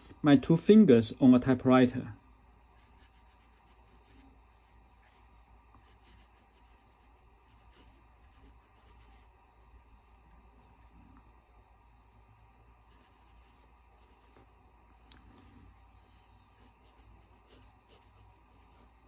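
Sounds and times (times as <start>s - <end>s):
pen nib scratching paper: 2.7s - 10.9s, 12.8s - 14.6s, 15.4s - 19.0s.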